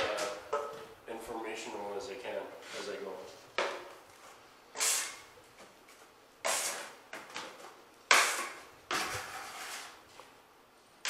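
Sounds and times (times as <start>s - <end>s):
drywall tools scraping clatter: 8.1s - 10.0s.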